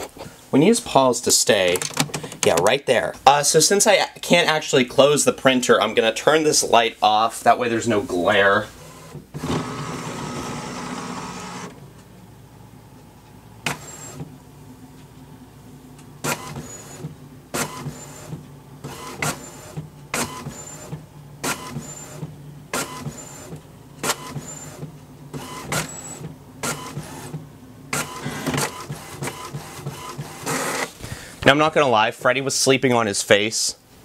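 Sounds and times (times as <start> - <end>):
printer motor hum: 8.8 - 11.9, 13.5 - 14.5, 16.0 - 31.0
printer mechanical clacks: 16.2 - 30.9.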